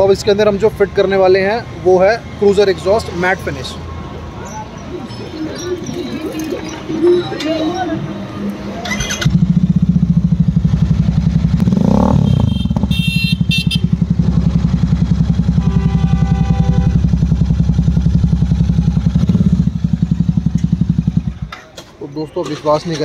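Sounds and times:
motorcycle engine idling: 9.0 - 21.6.

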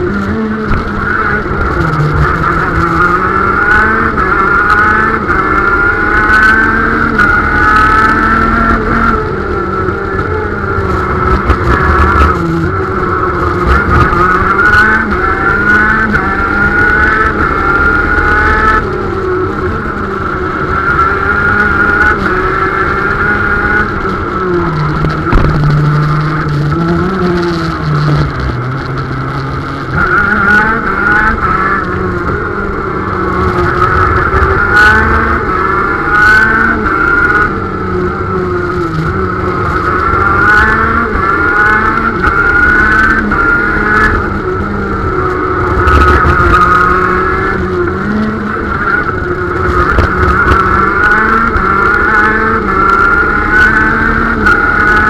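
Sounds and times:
kart engine revving: 0.0 - 55.0.

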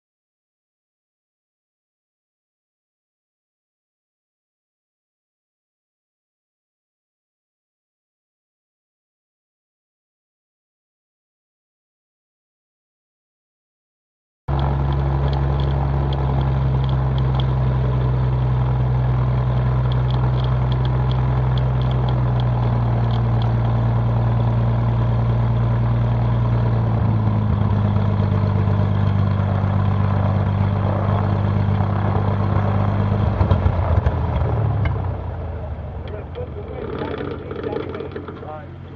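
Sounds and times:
propeller airplane engine idling: 14.5 - 38.9.

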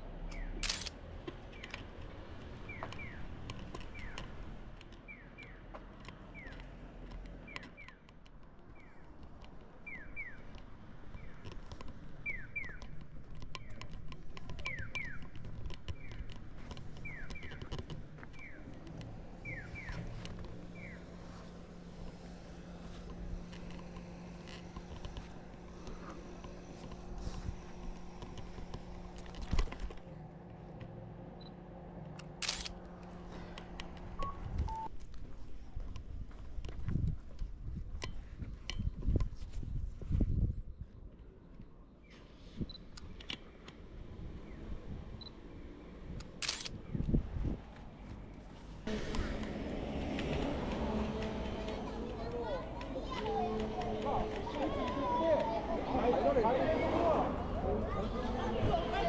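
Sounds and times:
low traffic rumble: 0.0 - 59.0
sharp clicks: 0.3 - 1.0, 32.2 - 32.8, 46.2 - 46.8
brief beeps: 34.2 - 34.9.

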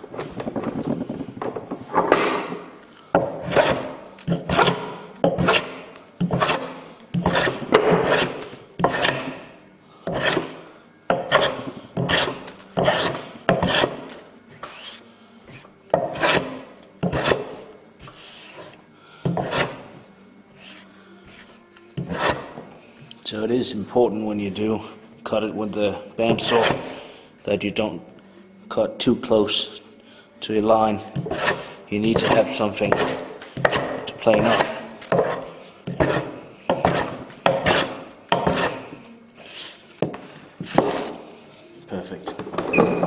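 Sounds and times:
hand plane shaving wood: 3.4 - 3.9, 4.5 - 4.8, 5.4 - 9.3, 10.1 - 10.6, 11.2 - 14.0, 14.7 - 17.4, 19.4 - 19.8, 20.6 - 22.5, 26.4 - 26.9, 31.2 - 33.8, 36.0 - 38.8.

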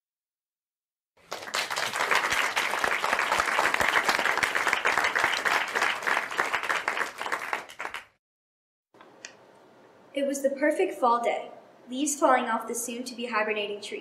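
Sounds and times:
applause: 1.2 - 8.2.

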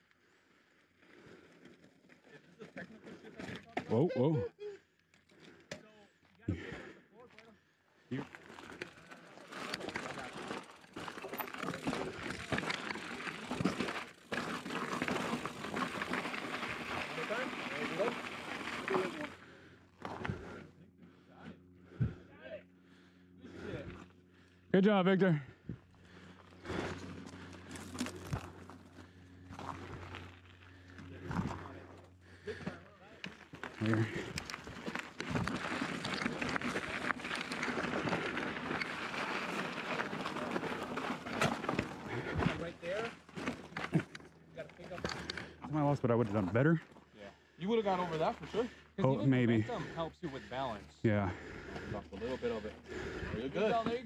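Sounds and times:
bike tyres crunching on gravel: 8.2 - 20.6, 26.1 - 46.8
bike frame rattling: 8.4 - 19.3, 33.5 - 45.4.

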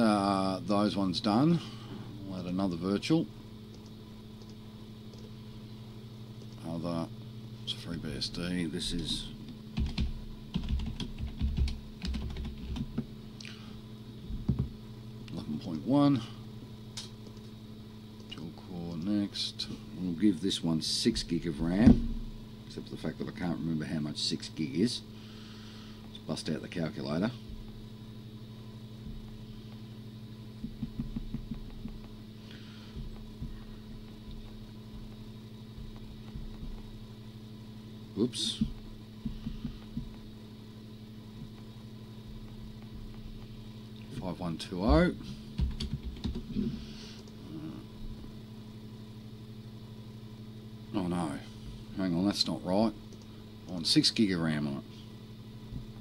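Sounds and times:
steady low hum: 0.0 - 56.0
typing on a computer keyboard: 9.8 - 12.9.

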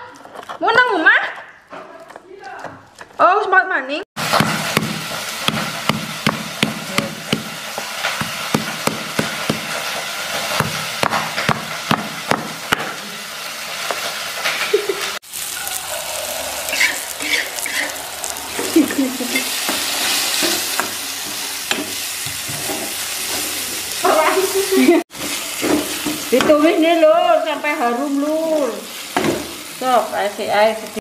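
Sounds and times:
spice paste sizzling in oil: 4.2 - 31.0
stone pestle pounding in mortar: 4.4 - 7.5, 8.2 - 9.7, 10.6 - 12.8
metal spatula stirring in wok: 16.7 - 23.9.

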